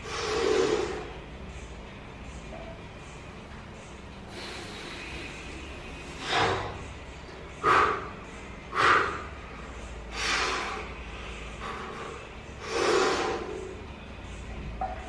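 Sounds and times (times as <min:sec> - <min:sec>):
person breathing heavily: 0:00.0 - 0:01.2, 0:04.3 - 0:06.8, 0:07.5 - 0:13.9.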